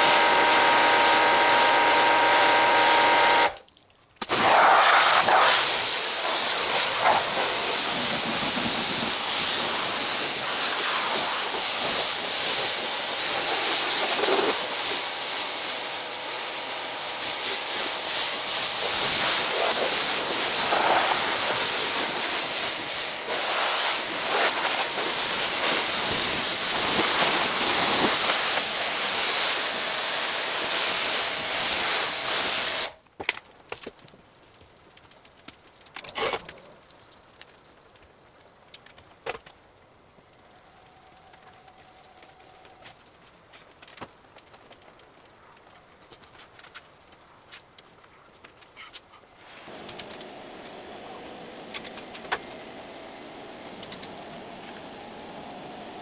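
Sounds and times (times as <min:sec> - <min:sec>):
pressure washer spraying: 0:00.0 - 0:03.6, 0:04.3 - 0:33.0, 0:49.4 - 0:56.0.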